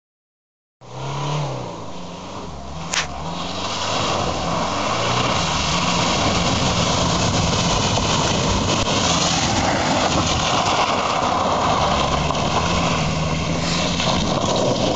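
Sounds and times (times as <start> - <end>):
car engine revving: 0.8 - 14.9
water spray and tyre noise: 0.9 - 14.9
sharp click: 2.9 - 3.1.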